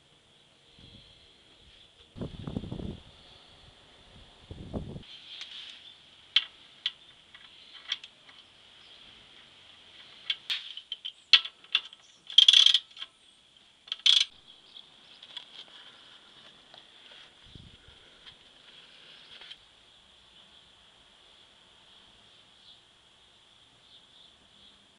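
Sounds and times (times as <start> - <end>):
faint high-pitched hiss: 0.0 - 24.9
metallic clicks and rattles of tools: 6.4 - 8.5, 10.2 - 13.2, 13.8 - 14.4.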